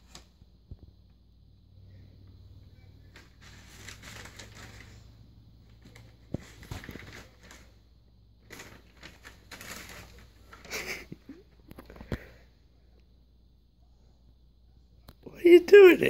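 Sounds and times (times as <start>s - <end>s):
paper bag rustling: 3.0s - 7.8s, 8.4s - 12.0s.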